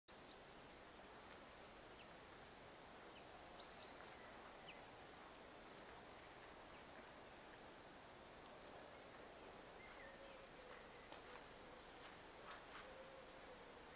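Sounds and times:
faint forest ambience: 0.1 - 13.9
faint bird chirps: 5.5 - 13.9.

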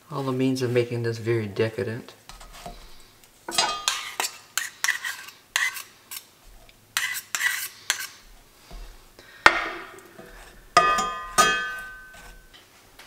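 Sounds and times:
metal spoon scraping metal cup: 3.5 - 6.2, 7.0 - 8.2, 9.9 - 12.6.

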